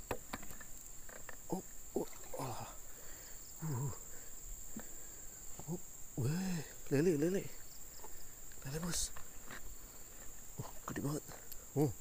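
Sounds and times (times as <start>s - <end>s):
high-pitched insect drone: 0.5s - 12.0s
man grunting: 1.5s - 2.8s, 3.6s - 4.0s.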